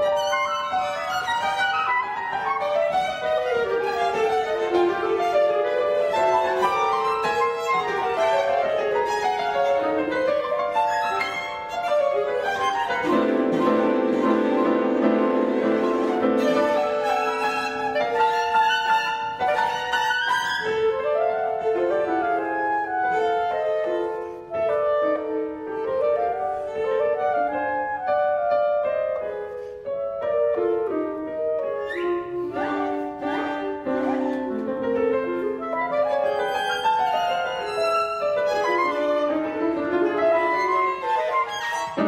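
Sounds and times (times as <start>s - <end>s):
chamber music ensemble playing: 0.0s - 42.0s.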